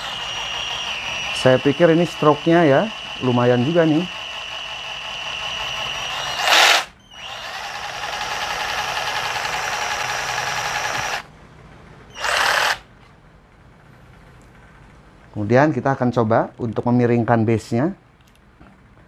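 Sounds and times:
jigsaw running: 0.0s - 11.3s, 12.2s - 12.8s.

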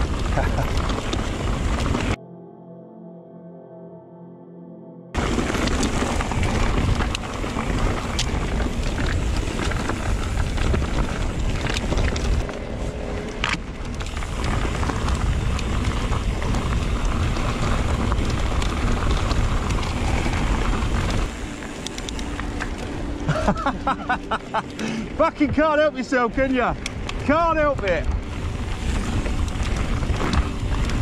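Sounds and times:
stones and bike rattling: 0.0s - 2.2s, 5.2s - 31.0s
tyres rolling over gravel: 0.0s - 2.2s, 5.2s - 31.0s
wind rushing over camera: 0.0s - 2.2s, 5.2s - 24.8s, 26.8s - 31.0s.

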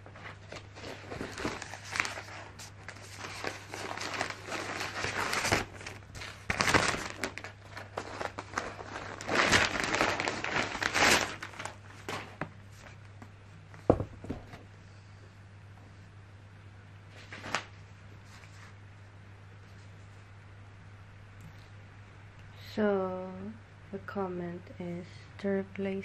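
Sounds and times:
wrapping sheet crinkling: 0.0s - 13.0s, 17.1s - 18.8s.

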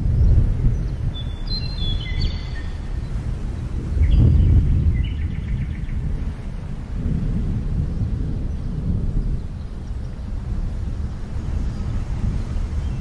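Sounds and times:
small birds chirping: 0.0s - 6.8s, 7.4s - 13.0s
low rumbling noise: 0.0s - 13.0s.

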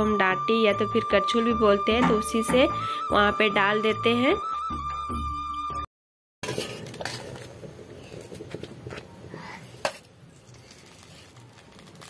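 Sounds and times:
wood fire crackling: 10.3s - 12.0s.

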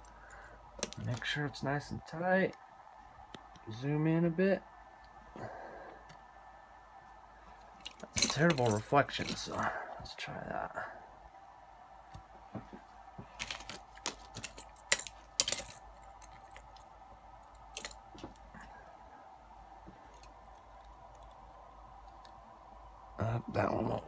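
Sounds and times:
faint steady hum: 0.0s - 24.0s
metal tools clicking and clinking: 7.8s - 9.6s, 13.4s - 16.9s.

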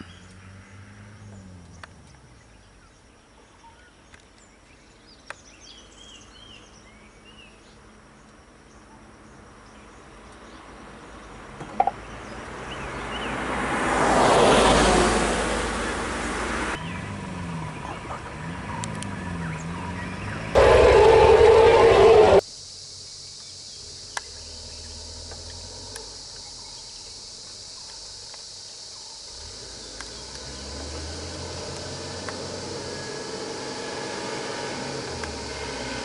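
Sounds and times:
vehicle passing close by: 0.0s - 2.6s, 11.8s - 22.4s, 29.3s - 36.0s.

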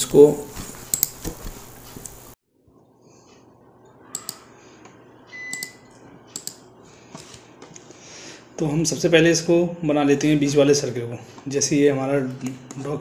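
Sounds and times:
computer mouse clicks: 6.4s - 6.6s.

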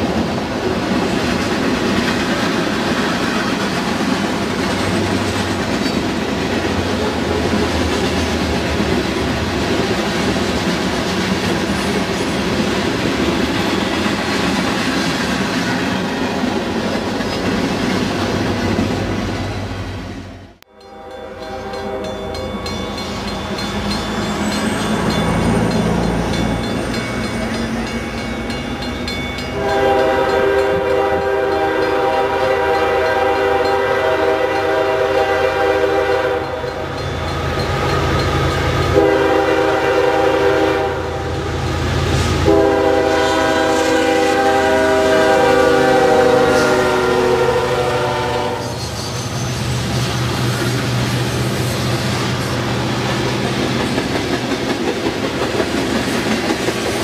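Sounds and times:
diesel locomotive approaching: 0.0s - 57.0s
locomotive air horn: 20.7s - 22.4s, 29.6s - 36.7s, 38.8s - 41.4s, 42.4s - 48.8s.

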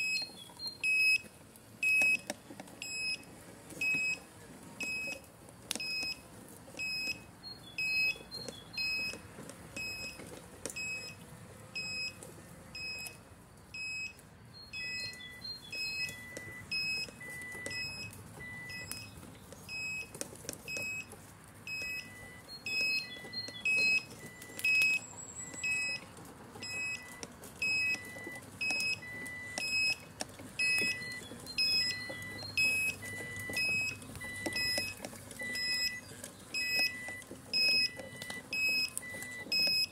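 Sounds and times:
short high beeps: 30.6s - 39.9s.

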